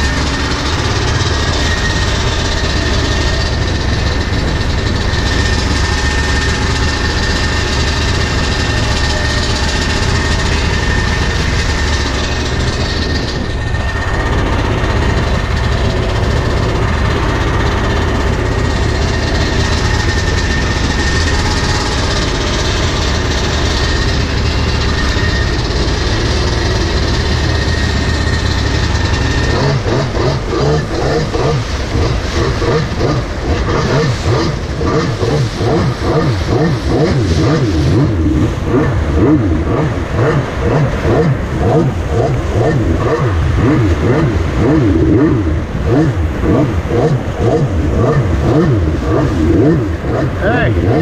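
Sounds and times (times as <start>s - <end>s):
jet ski engine rumble: 0.0s - 51.0s
rushing water: 28.4s - 51.0s.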